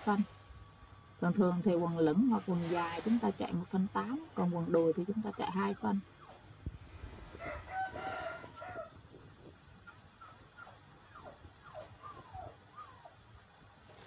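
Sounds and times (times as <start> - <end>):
rooster crowing: 7.3 - 9.0.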